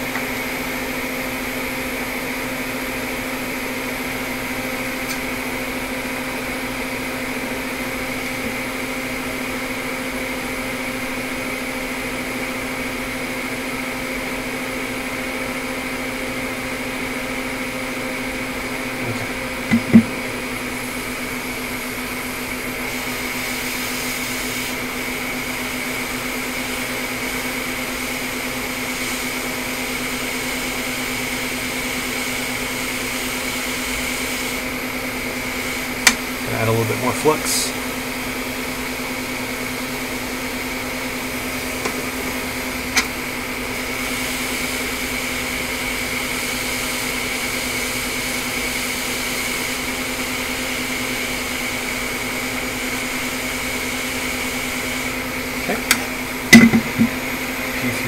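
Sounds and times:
fan motor drone: 0:00.0 - 0:58.0
steady electrical hum: 0:14.2 - 0:58.0
sharp double knock: 0:56.5 - 0:57.2.

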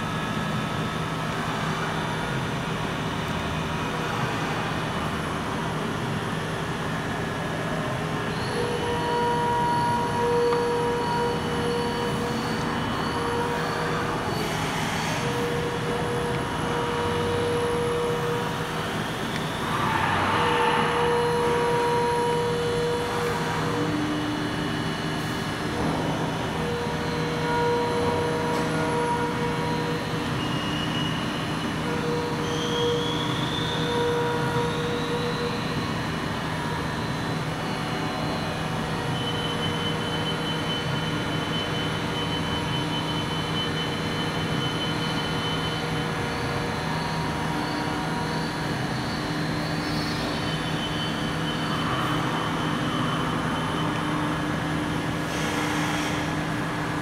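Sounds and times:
machinery hum: 0:00.0 - 0:57.0
high whine rising in pitch: 0:15.2 - 0:42.2.

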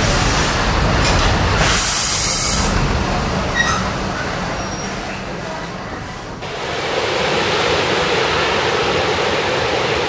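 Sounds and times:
train wheels rumbling on rail: 0:00.0 - 0:10.0
steam hiss: 0:01.6 - 0:02.8.

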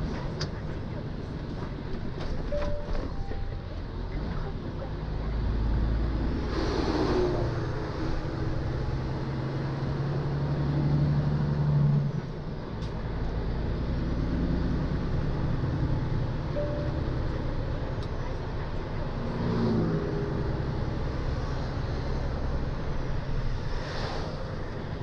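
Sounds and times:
bus passing whoosh: 0:05.4 - 0:25.0
truck diesel engine running: 0:07.4 - 0:25.0.

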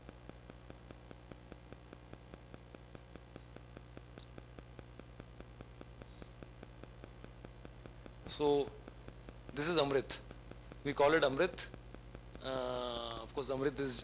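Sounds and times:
electrical hum and hiss: 0:00.0 - 0:14.0
thin high whine: 0:00.0 - 0:14.0
fast even ticking: 0:03.6 - 0:14.0.

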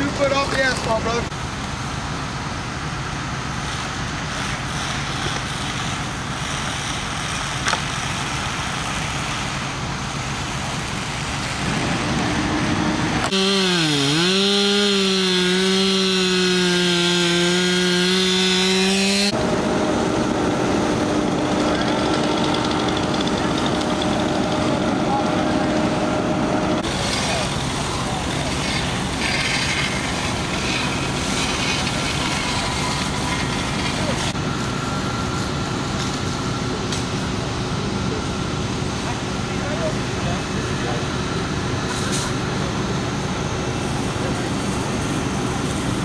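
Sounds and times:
chainsaw running: 0:13.2 - 0:27.0.

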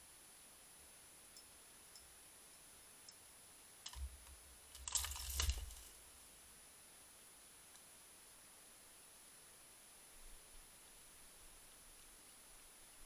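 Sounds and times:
faint ticks: 0:01.3 - 0:03.2, 0:03.8 - 0:06.0
feeder rattling and clattering: 0:04.7 - 0:06.0.

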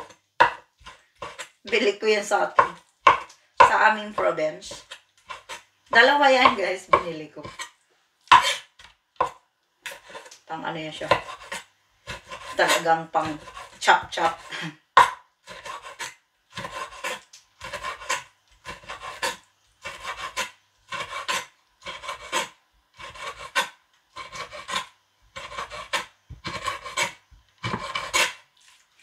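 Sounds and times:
knife chopping on wooden board: 0:00.0 - 0:01.5, 0:02.5 - 0:07.7, 0:08.3 - 0:10.3, 0:11.0 - 0:28.4.

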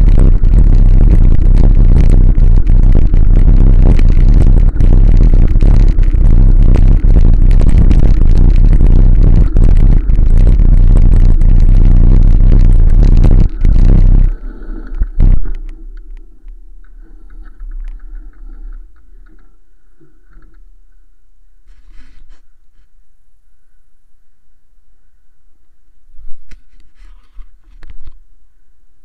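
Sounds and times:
faint low sounds: 0:00.0 - 0:21.8.

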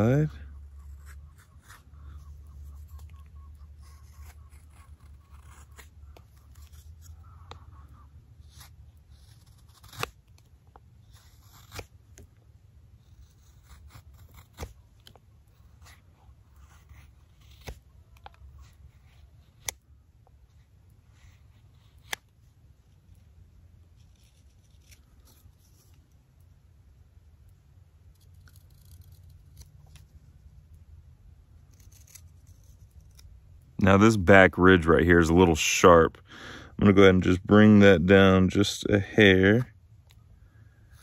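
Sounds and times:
knife scraping wood: 0:00.0 - 0:12.3, 0:13.0 - 0:19.8, 0:20.5 - 0:22.3, 0:22.9 - 0:26.2, 0:28.0 - 0:30.6, 0:31.6 - 0:34.4.

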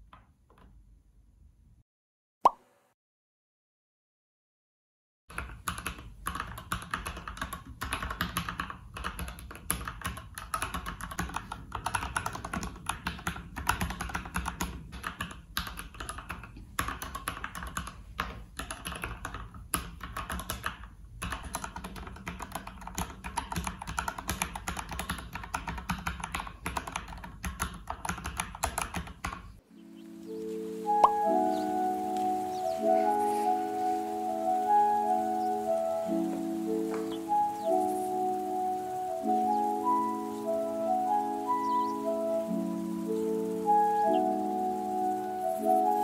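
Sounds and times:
fast typing on mechanical keyboard: 0:05.3 - 0:29.6.

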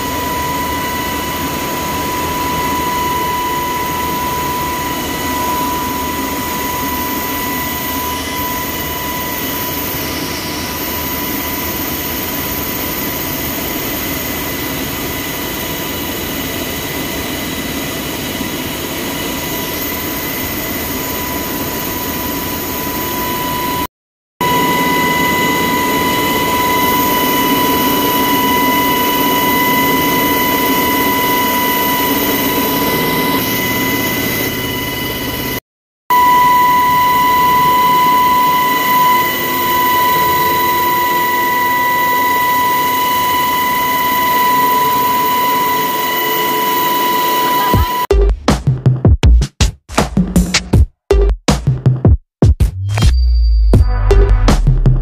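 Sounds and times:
constant high whine: 0:00.0 - 0:23.8, 0:24.4 - 0:48.1
helicopter turbines and rotors droning: 0:00.0 - 0:23.8, 0:24.4 - 0:48.1.

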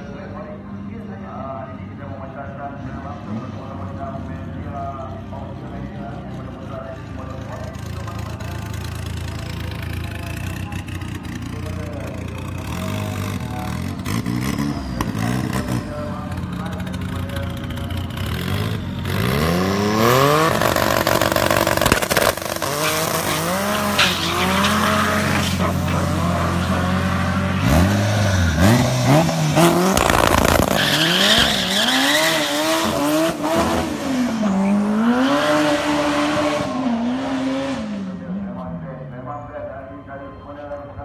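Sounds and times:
car engines revving: 0:00.0 - 0:39.3
tyres squealing: 0:22.7 - 0:27.1, 0:30.6 - 0:32.9.

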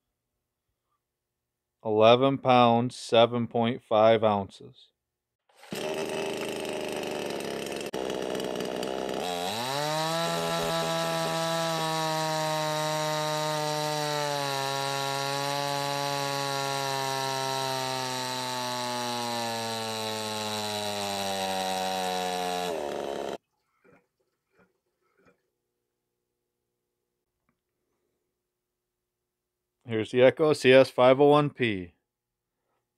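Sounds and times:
chainsaw engine at full throttle: 0:05.6 - 0:23.4.

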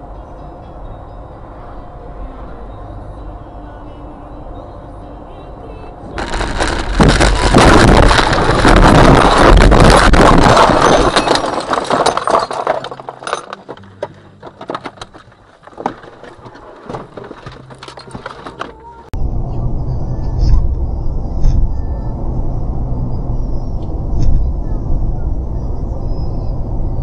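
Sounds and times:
glass and debris clinking: 0:06.2 - 0:18.8
windshield shattering: 0:06.2 - 0:18.8
car crash crunching and scraping: 0:06.2 - 0:18.9.

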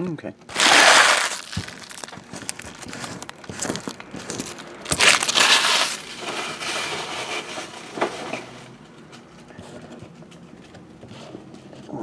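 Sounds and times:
packaging crinkling: 0:00.5 - 0:07.6.

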